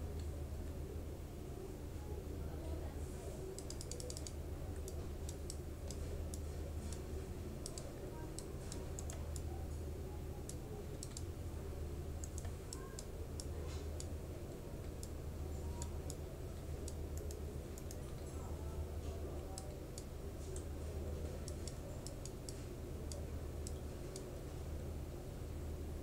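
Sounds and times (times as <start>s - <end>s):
steady low hum: 0.0s - 26.0s
mouse and keyboard clicking: 3.6s - 7.0s, 7.6s - 9.5s, 10.4s - 11.3s.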